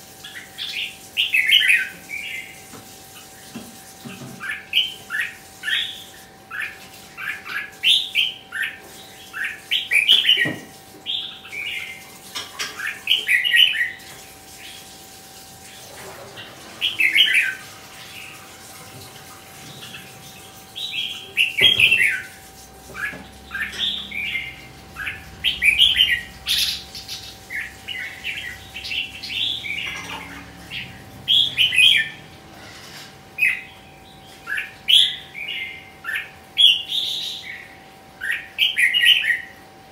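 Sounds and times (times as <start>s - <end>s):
bird whistling song: 23.0s - 30.1s, 31.3s - 32.2s.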